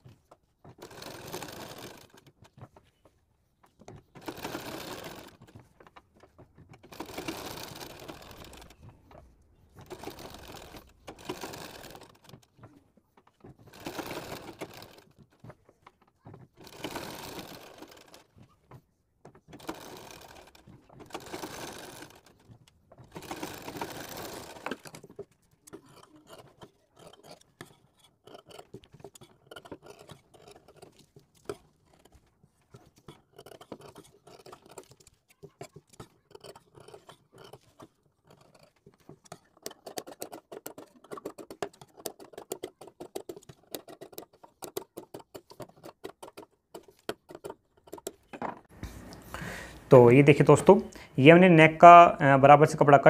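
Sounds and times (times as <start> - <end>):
sewing machine stitching: 0.0 - 48.7
scissors snipping fabric: 23.0 - 48.3.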